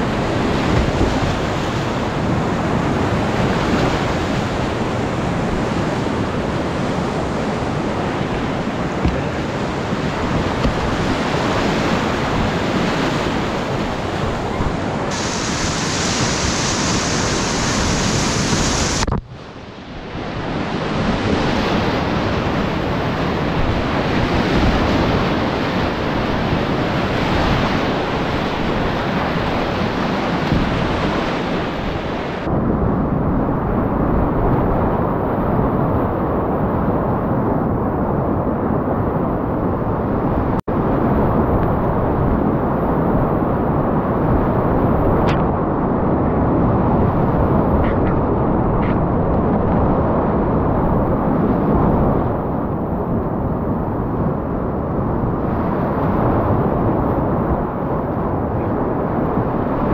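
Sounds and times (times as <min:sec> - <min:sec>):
whitewater rapids rushing: 0:07.8 - 0:19.1.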